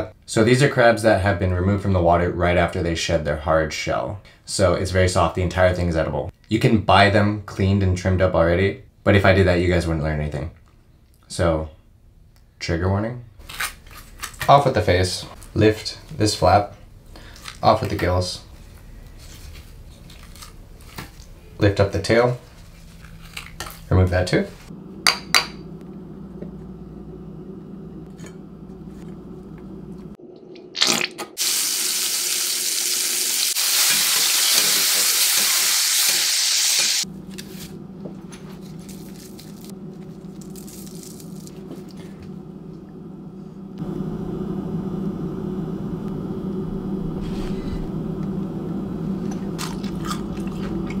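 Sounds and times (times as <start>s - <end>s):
low hum: 24.4s - 31.4s, 37.1s - 51.0s
crab sizzling in hot oil: 31.4s - 37.1s.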